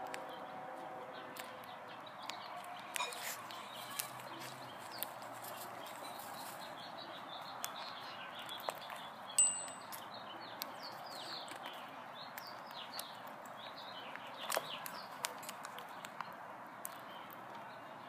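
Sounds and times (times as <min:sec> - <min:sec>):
sharp clicks: 0:11.4 - 0:17.4.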